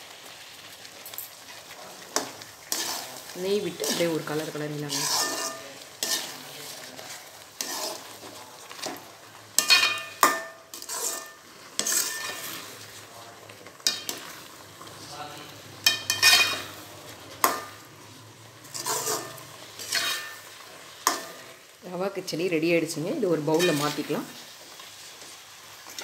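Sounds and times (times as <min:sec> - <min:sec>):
ladle scraping pan: 0:01.5 - 0:15.2, 0:15.8 - 0:21.7, 0:23.4 - 0:26.0
ladle clinking against pan: 0:15.9 - 0:16.7.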